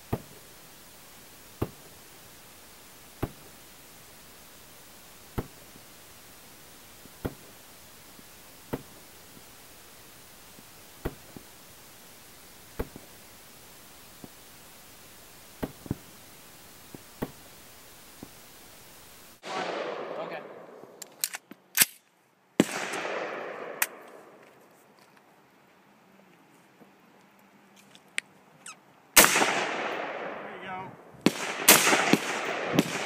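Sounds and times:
steady low hiss: 0.0 - 33.0
rifle gunshots: 19.4 - 21.0, 22.6 - 24.4, 29.2 - 33.0.

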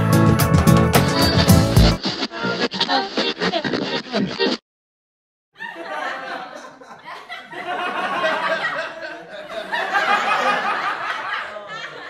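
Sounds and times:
people talking and laughing: 5.6 - 12.0.

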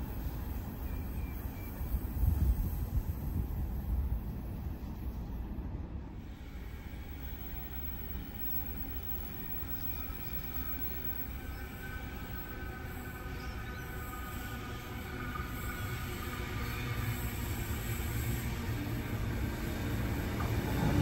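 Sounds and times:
electric train rumbling on rails: 0.0 - 21.0.

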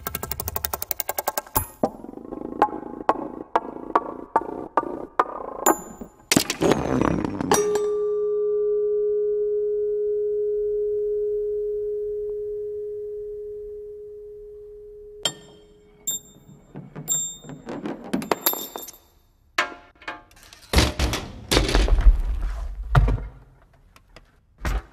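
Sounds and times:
metal part ringing: 15.2 - 16.5
metal car parts clattering: 16.8 - 21.7.

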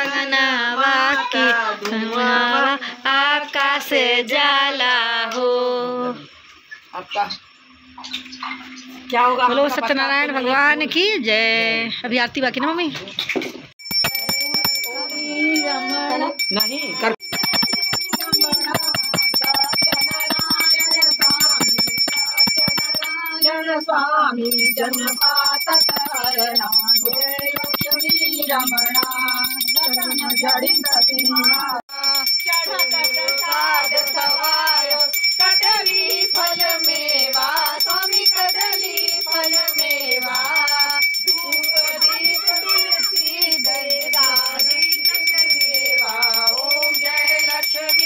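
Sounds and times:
woman singing devotional song: 0.0 - 6.3, 13.9 - 48.0
hand bell ringing rapidly: 13.8 - 48.0
people's voices: 13.9 - 48.0.

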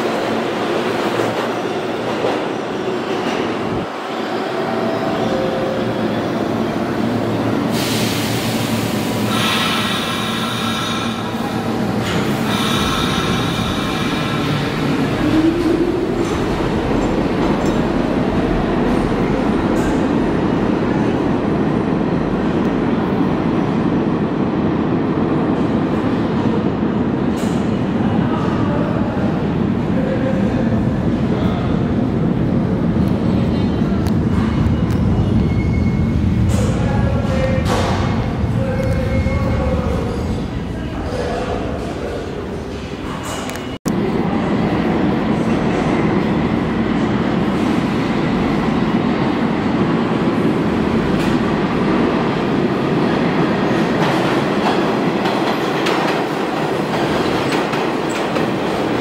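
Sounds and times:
subway train wheels rumbling: 0.0 - 59.0
high brake squeal: 35.2 - 36.2.

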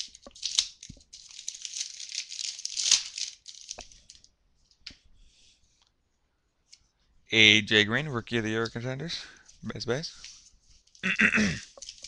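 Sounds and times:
foil wrapper crinkling: 0.0 - 4.3, 10.3 - 12.0.

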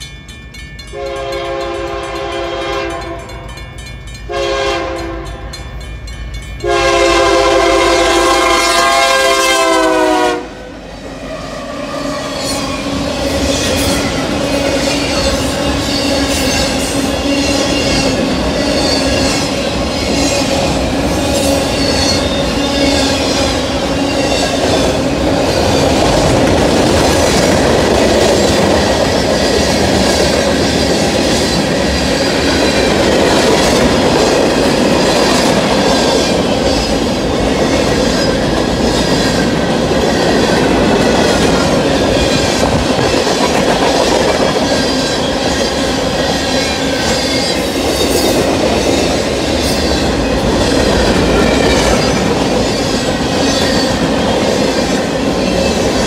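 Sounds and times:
crossing bells ringing: 0.0 - 8.2
train wheels rumbling and clacking: 0.0 - 56.0
train air horn: 1.0 - 3.4, 4.3 - 5.4, 6.6 - 10.8.

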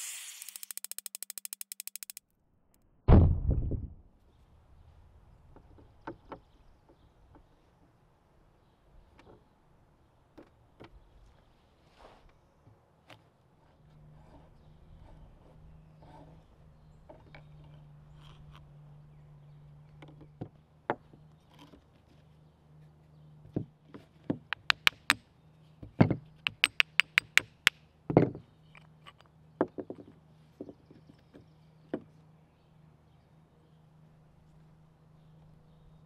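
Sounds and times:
hammer knocking on metal: 24.6 - 25.2, 26.5 - 27.7.

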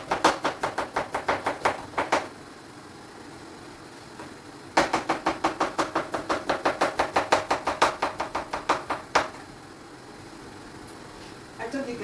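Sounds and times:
knife chopping: 0.0 - 2.3, 4.8 - 9.4.

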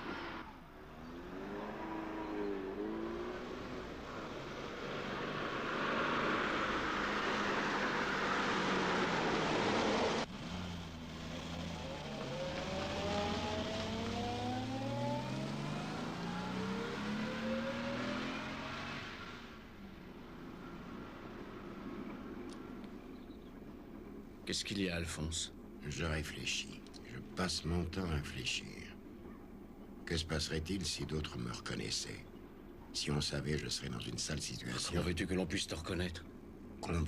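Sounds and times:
car engine accelerating: 0.0 - 23.0
engine and road noise rushing: 0.0 - 37.0.

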